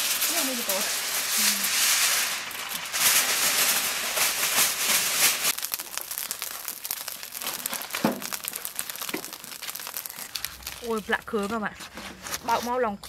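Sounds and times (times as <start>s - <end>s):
aluminium foil crinkling: 0.0s - 13.0s.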